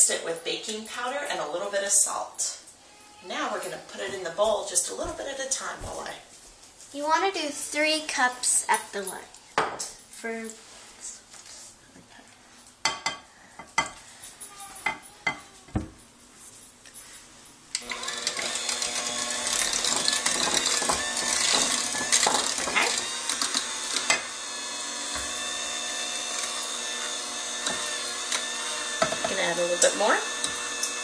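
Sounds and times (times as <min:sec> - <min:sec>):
electric hand mixer running: 0:17.8 - 0:31.0.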